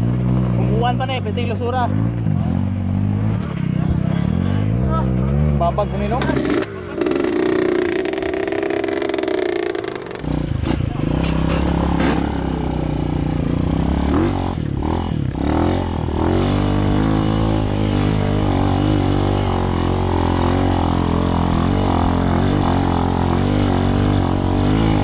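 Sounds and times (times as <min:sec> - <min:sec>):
dirt bike engines revving: 0:00.0 - 0:25.0.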